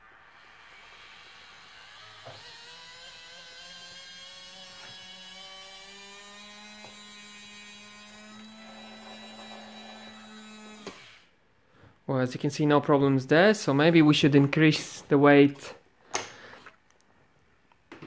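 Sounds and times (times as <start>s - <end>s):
electric motor whining: 0.5s - 11.3s.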